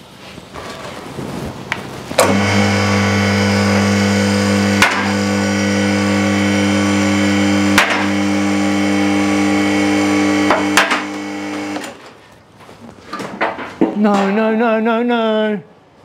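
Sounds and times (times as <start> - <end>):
hydraulic pump motor humming: 2.2 - 12.0.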